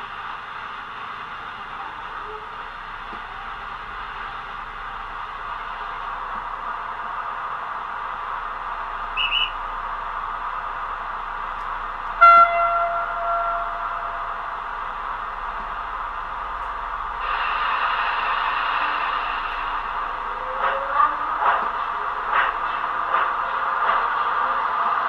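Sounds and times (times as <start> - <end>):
steady locomotive hiss: 0.0 - 25.0
locomotive horn blast: 12.2 - 14.4.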